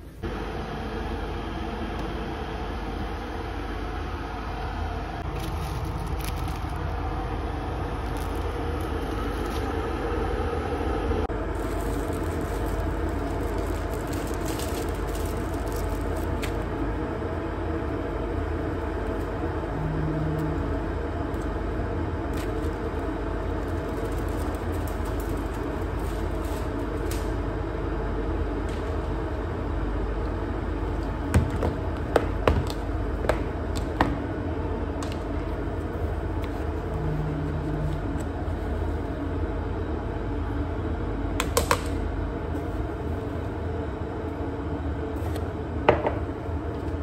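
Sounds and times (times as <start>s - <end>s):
steady low rumble: 0.0s - 47.0s
plastic bag crinkling: 5.3s - 7.0s, 11.3s - 16.9s, 22.3s - 27.4s.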